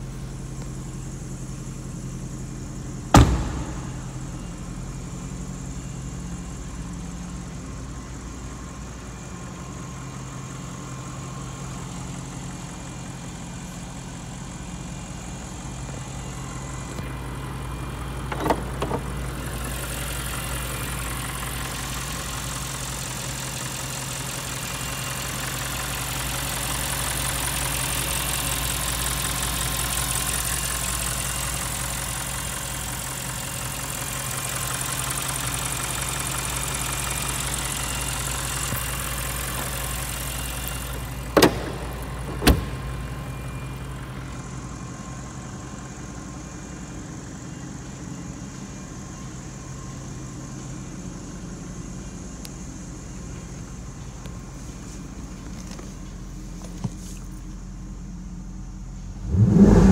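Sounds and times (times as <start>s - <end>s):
car engine idling: 0.0s - 59.9s
sharp knocks: 3.1s - 4.2s.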